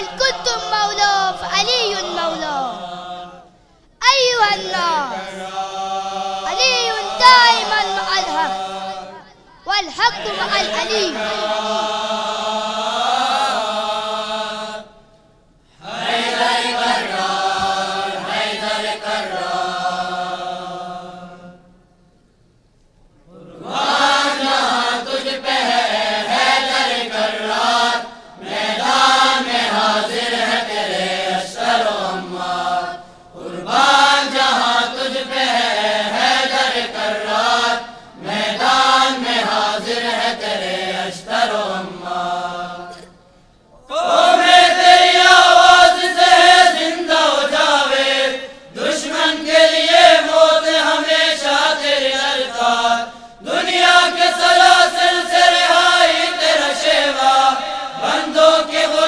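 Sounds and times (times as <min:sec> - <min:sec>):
choir singing in unison: 0:00.0 - 0:09.4, 0:10.0 - 0:15.0, 0:15.8 - 0:21.8, 0:23.3 - 0:43.2, 0:43.9 - 0:59.0.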